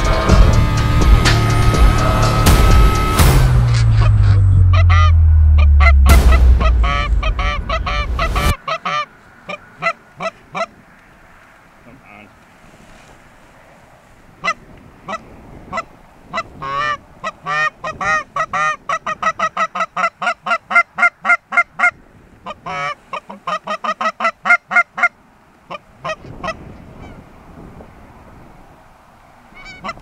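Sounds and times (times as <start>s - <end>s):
wavering goose moan: 0.0s - 10.7s
goose honks and clucks: 3.6s - 10.8s, 14.4s - 27.2s, 29.6s - 30.0s.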